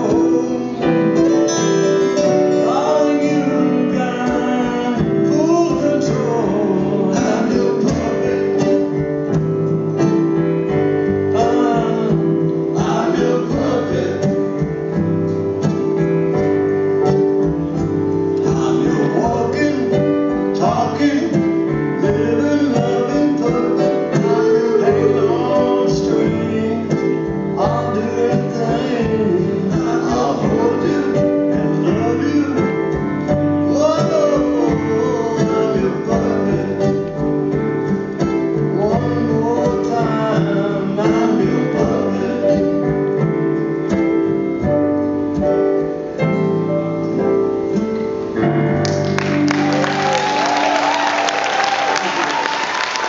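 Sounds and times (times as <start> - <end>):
people singing: 0.0 - 1.7, 2.4 - 8.8, 11.4 - 14.7, 20.6 - 32.7
band playing soul song: 0.0 - 53.0
audience applause: 48.8 - 53.0.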